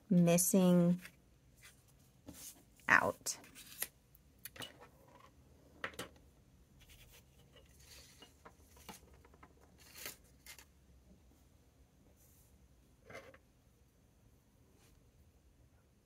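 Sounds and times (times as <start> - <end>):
soft paper rustles: 6.8 - 10.7.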